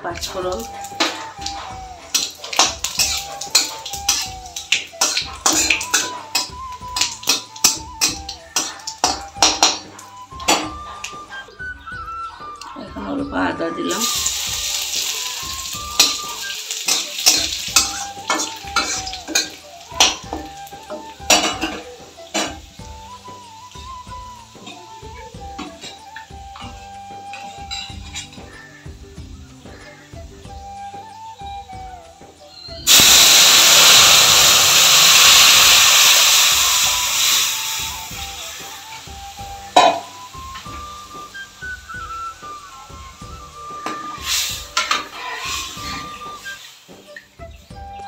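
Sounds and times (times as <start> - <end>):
spices sizzling in hot oil: 0.0 - 48.0
metal spatula scraping pan: 1.0 - 4.3, 5.0 - 9.9, 16.0 - 20.2, 43.9 - 46.2.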